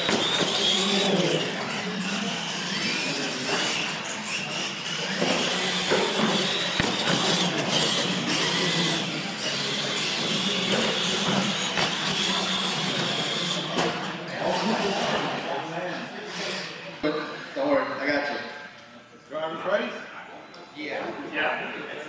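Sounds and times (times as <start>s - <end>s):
toy truck motors whining: 0.0s - 15.3s.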